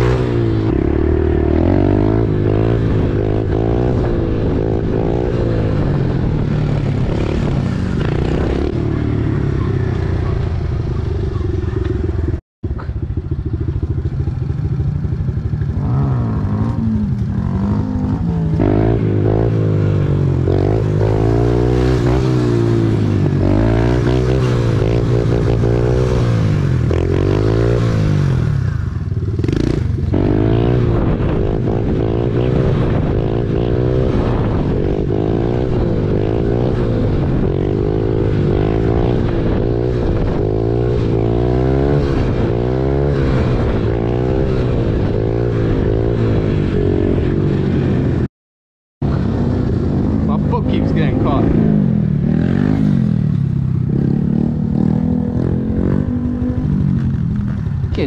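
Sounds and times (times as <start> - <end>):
dirt bike engine revving: 0.0 - 9.6, 15.2 - 28.8, 49.0 - 58.0.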